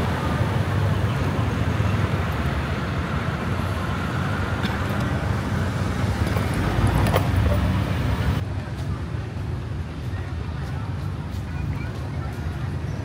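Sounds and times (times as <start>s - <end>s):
cars and motorbikes passing: 0.0s - 13.0s.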